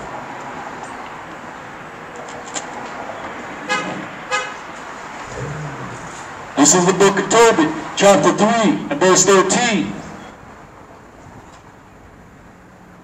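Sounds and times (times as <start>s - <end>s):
street traffic: 0.0s - 13.0s
car horn toots: 3.7s - 4.6s.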